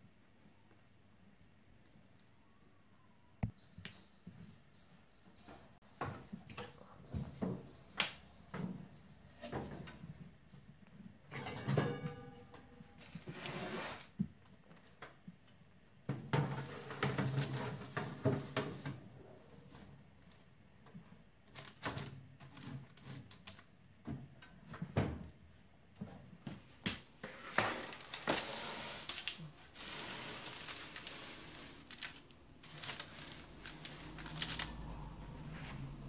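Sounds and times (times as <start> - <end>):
tray clattering onto rack: 11.3 - 12.5.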